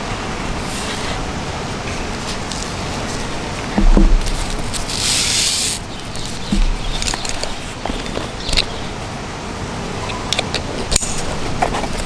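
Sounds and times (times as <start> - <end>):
steady background noise: 0.0 - 12.0
strap rubbing hiss: 2.2 - 8.7
backpack low thump: 3.7 - 4.8, 6.4 - 8.0.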